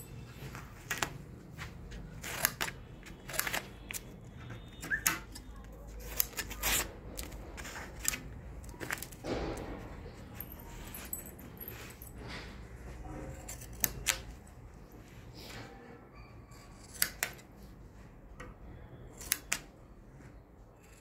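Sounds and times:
scissors snipping fabric: 0:02.1 - 0:09.1, 0:13.3 - 0:14.4, 0:16.7 - 0:17.5, 0:19.1 - 0:19.7.

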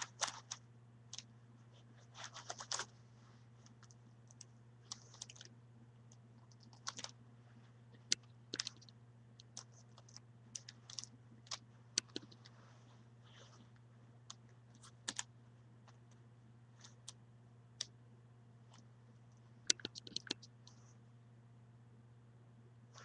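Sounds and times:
steady low hum: 0:00.0 - 0:23.0
puzzle cube clicking: 0:19.7 - 0:20.4.

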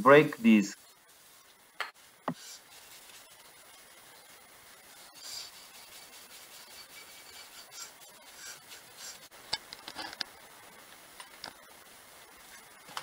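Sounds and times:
cloth wiping metal disc: 0:02.3 - 0:09.3.

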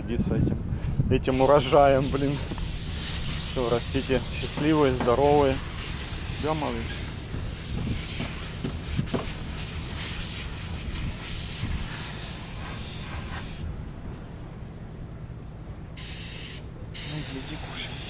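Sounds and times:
wind on microphone: 0:00.0 - 0:14.2.

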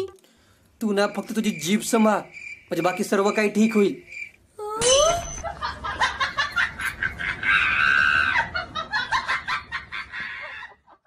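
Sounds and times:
laughter: 0:05.4 - 0:11.0
shrill screaming: 0:07.4 - 0:08.6.

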